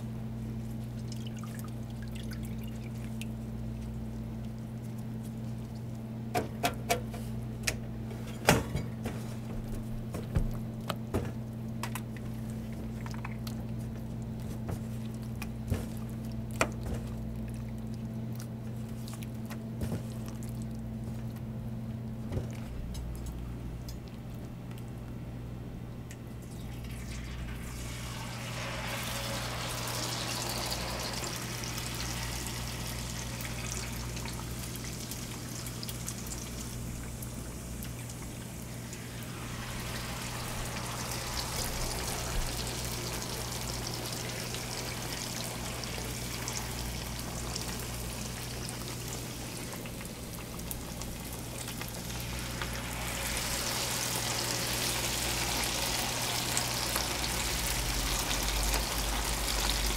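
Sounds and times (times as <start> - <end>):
steady low hum: 0.0 - 59.9
battered meat sizzling in oil: 26.9 - 59.9.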